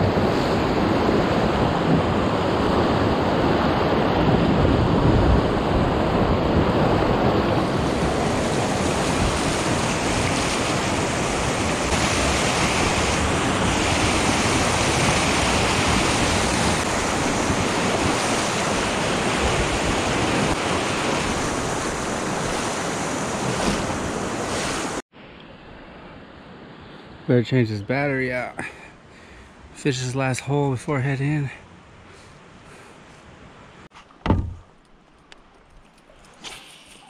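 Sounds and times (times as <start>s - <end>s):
river water rushing and splashing: 5.0s - 25.0s.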